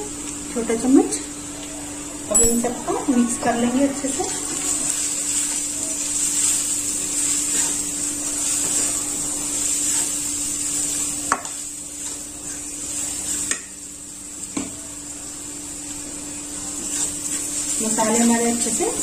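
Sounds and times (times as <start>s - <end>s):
frying sizzle: 0.0s - 19.0s
wooden spatula scraping pan: 6.2s - 11.1s.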